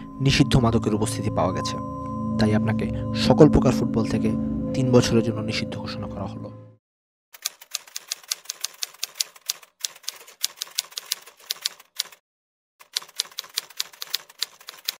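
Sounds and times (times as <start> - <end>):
typewriter keys clacking: 7.4 - 12.2, 12.8 - 15.0.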